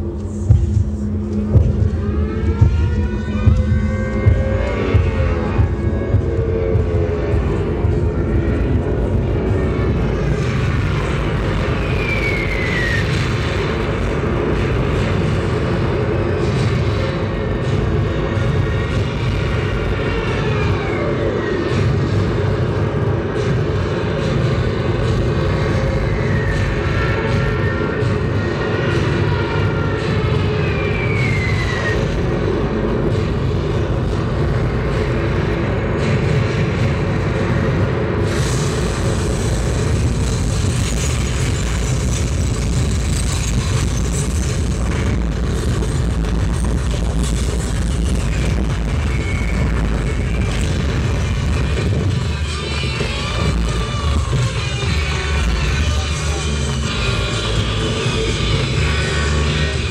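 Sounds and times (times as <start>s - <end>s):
drone of aircraft engines: 0.0s - 59.9s
low mechanical rumble: 0.0s - 59.9s
falling bomb whistle: 11.6s - 13.8s.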